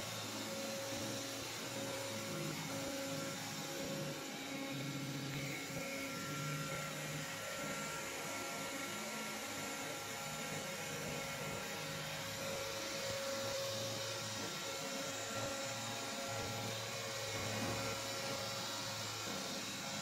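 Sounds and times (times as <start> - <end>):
robot vacuum whirring: 11.0 - 20.0.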